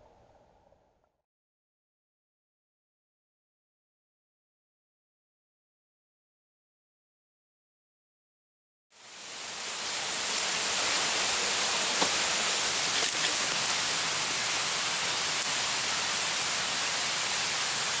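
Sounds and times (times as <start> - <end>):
water rushing: 9.0 - 18.0.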